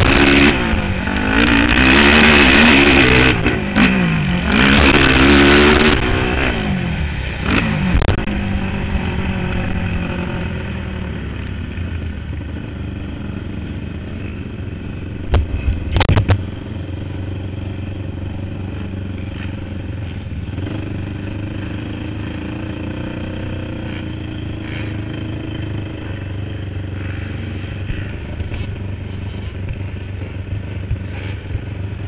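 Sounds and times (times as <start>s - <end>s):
quad engine revving: 0.0s - 32.0s
sharp clatter: 15.3s - 16.6s.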